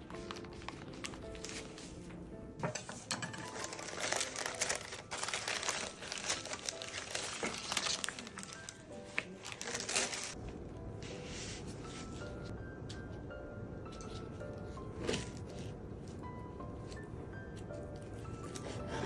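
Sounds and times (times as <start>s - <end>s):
parchment paper crinkling: 0.0s - 2.1s, 3.4s - 10.4s
background music: 0.0s - 19.0s.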